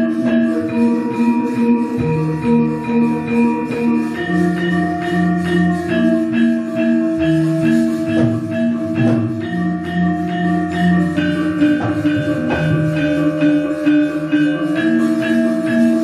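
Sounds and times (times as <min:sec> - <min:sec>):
gamelan ensemble playing: 0:00.0 - 0:16.0.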